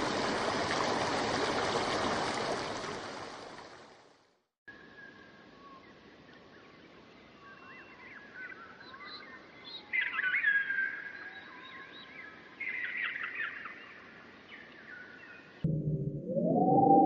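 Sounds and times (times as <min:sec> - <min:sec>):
songbirds chirping and singing: 0:07.2 - 0:13.9.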